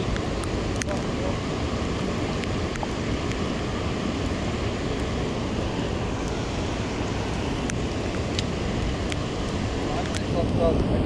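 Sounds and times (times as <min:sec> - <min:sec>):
raindrops clicking on device: 0:00.0 - 0:01.2, 0:02.2 - 0:03.4, 0:07.3 - 0:10.9
rushing choppy water: 0:00.0 - 0:11.0
wind buffeting microphone: 0:00.0 - 0:11.0.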